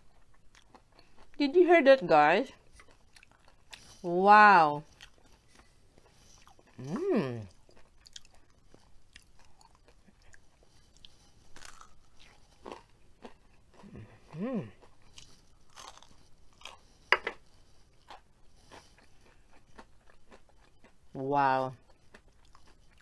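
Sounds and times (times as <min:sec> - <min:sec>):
crunchy food being chewed: 0:00.0 - 0:01.4, 0:02.5 - 0:04.1, 0:04.8 - 0:23.0
person humming: 0:06.8 - 0:07.5, 0:13.8 - 0:14.8.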